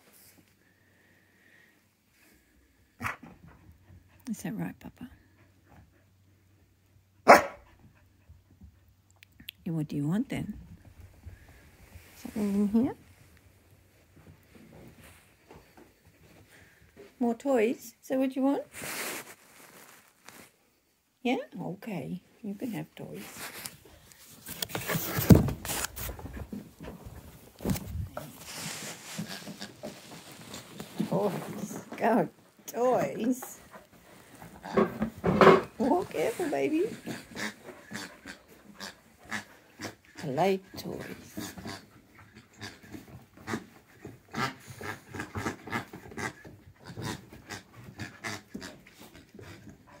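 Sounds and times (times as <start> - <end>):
rustling and knocking of toys: 10.6 - 17.2, 18.7 - 20.6, 23.1 - 50.0
rustling in cardboard box: 18.7 - 20.6, 23.2 - 32.3
cardboard box thump: 25.0 - 25.8
dogs panting: 31.5 - 35.2, 35.8 - 50.0.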